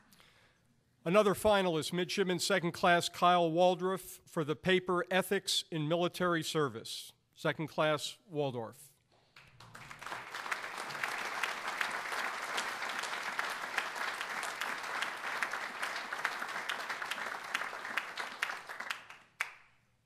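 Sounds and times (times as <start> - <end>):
audience applauding: 9.4 - 19.7.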